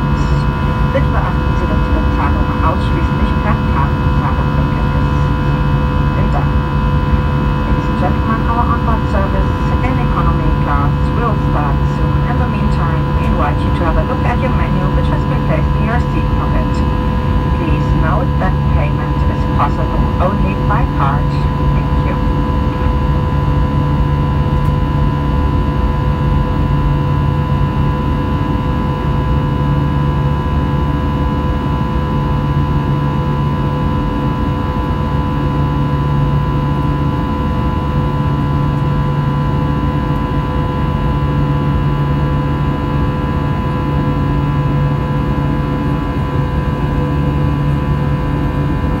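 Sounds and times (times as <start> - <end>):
jet engine rumble in cabin: 0.0 - 49.0.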